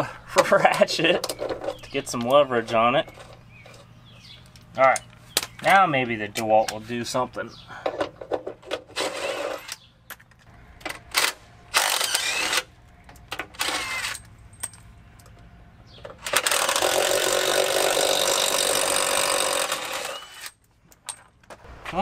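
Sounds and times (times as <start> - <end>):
cordless impact wrench: 11.2 - 12.7, 13.6 - 14.2, 16.2 - 20.6.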